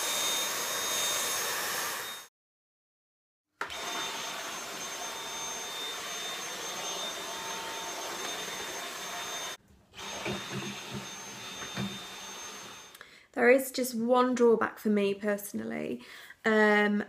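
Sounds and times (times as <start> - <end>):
vacuum cleaner whining: 0.0 - 2.3, 3.6 - 13.0.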